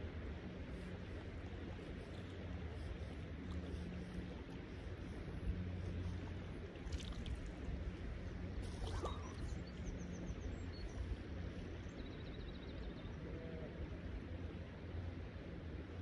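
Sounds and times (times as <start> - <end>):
faint bird calls: 8.6 - 10.5.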